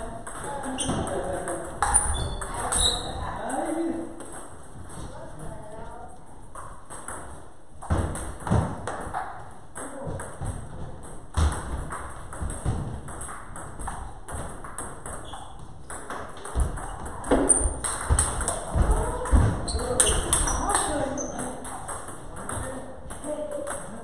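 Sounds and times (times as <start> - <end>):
table tennis balls clicking: 0.2 - 3.2, 6.5 - 24.0.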